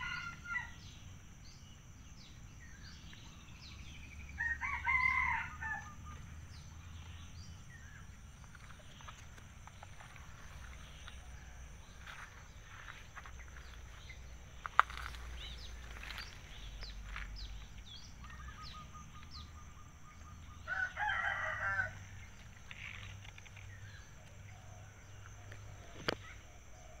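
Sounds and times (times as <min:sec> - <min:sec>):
rooster crowing: 0:00.0 - 0:00.8, 0:04.4 - 0:06.1, 0:20.6 - 0:22.1
small birds chirping: 0:00.0 - 0:27.0.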